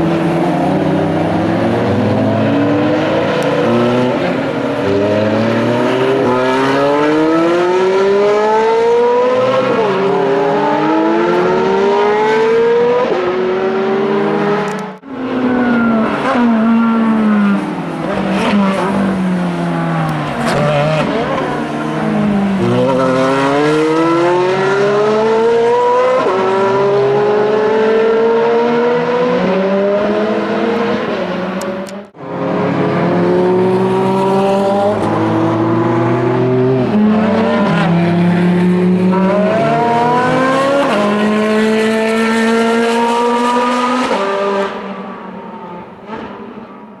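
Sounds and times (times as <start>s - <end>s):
sports car accelerating hard: 0.0s - 46.5s.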